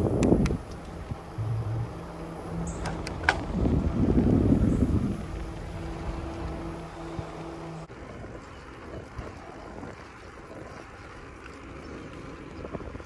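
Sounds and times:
steady low hum: 0.0 - 7.9
wind rushing over microphone: 0.0 - 10.8.

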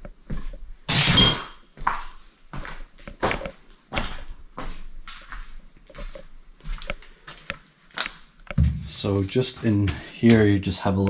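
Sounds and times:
footsteps on floor: 0.0 - 0.7, 1.7 - 10.6.

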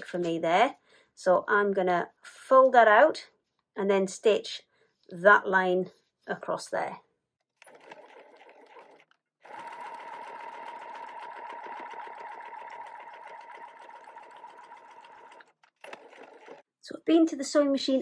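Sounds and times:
sewing machine stitching: 7.6 - 16.7.

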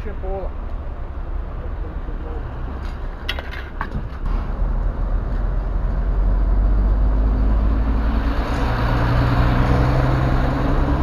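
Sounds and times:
diesel engine idling: 0.0 - 3.2.

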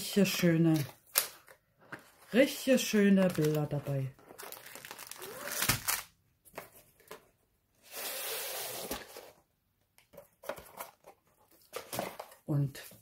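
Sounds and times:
plastic wrap rustling: 2.3 - 6.1.

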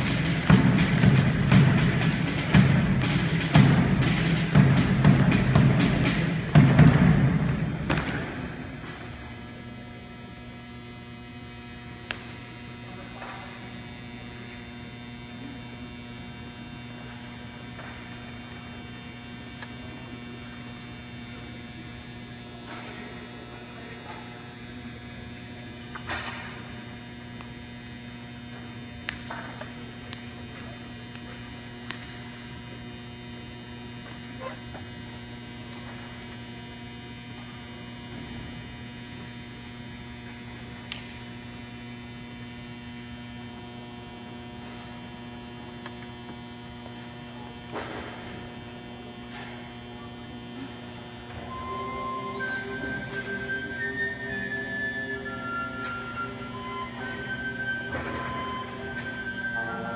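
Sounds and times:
electrical mains hum: 0.0 - 59.9.

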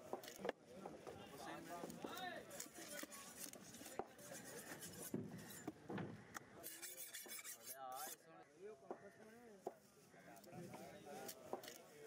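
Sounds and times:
knife sawing through fish: 2.9 - 5.6, 6.6 - 8.2.

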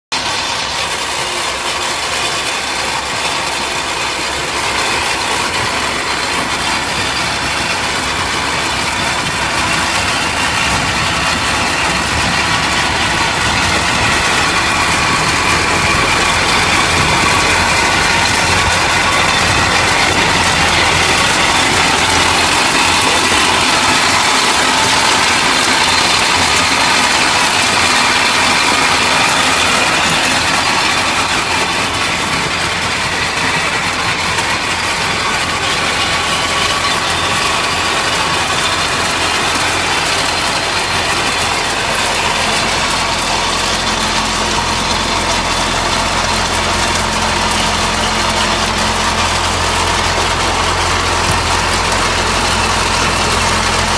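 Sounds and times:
tractor diesel engine running: 0.0 - 53.9
machine clattering over stones: 0.2 - 53.9.

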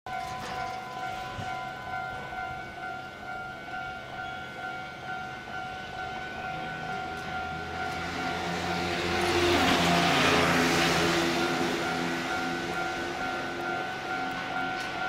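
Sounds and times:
level crossing alarm ringing: 0.1 - 15.0
passing vehicle rumble: 6.3 - 15.0.

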